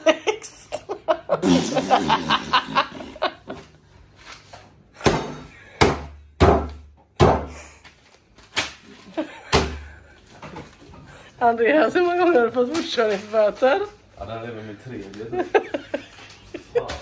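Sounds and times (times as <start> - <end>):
man laughing: 0.0 - 3.7, 15.3 - 17.0.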